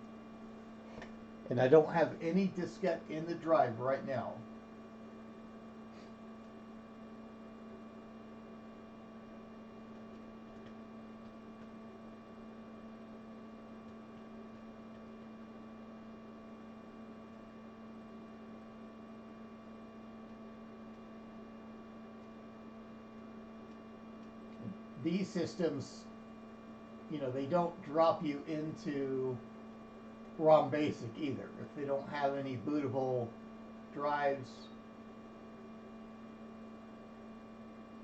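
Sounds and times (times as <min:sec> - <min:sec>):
steady tonal hum: 0:00.0 - 0:04.6, 0:24.5 - 0:34.8.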